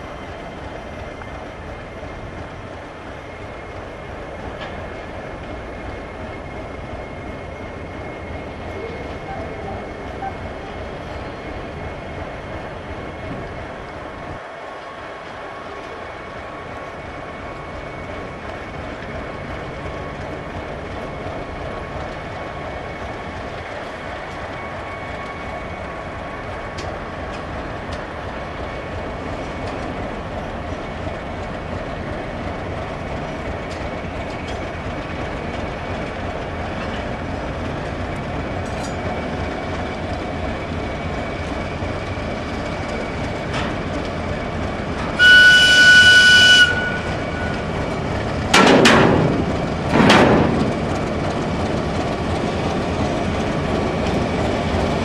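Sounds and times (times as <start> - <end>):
diesel locomotive engine running: 0.0 - 55.0
high train whistle: 8.8 - 10.5, 45.1 - 47.7
loud horn blasts: 45.2 - 47.6.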